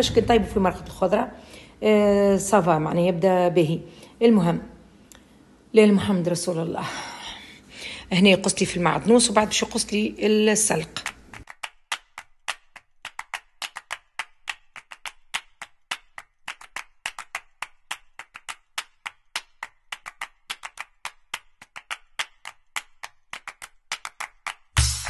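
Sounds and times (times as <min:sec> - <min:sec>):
music with heavy bass: 0:24.8 - 0:25.0.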